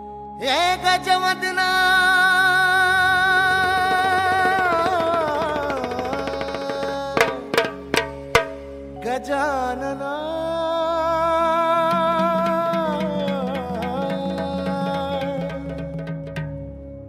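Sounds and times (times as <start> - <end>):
sharp drum strokes: 4.4 - 8.7.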